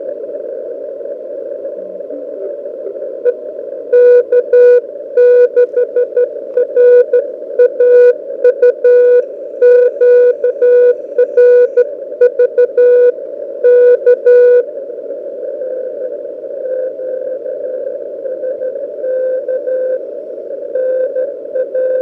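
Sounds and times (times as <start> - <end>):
receiver hiss: 0.0 - 22.0
morse code tone: 3.2 - 14.6.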